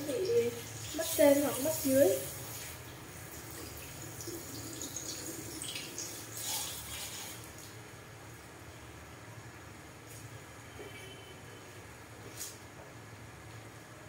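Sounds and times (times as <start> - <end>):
water drips and gurgles: 0.0 - 7.8
shower sprayer water splashing: 0.0 - 7.9.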